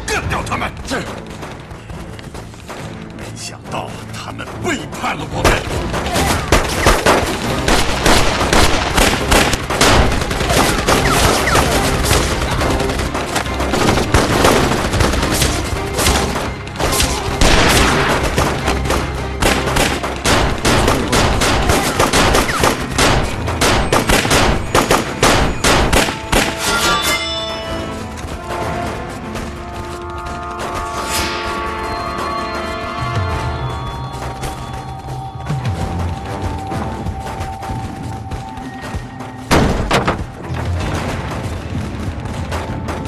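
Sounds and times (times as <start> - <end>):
film score music: 0.0 - 43.0
gunshots: 5.2 - 26.8, 39.5 - 43.0.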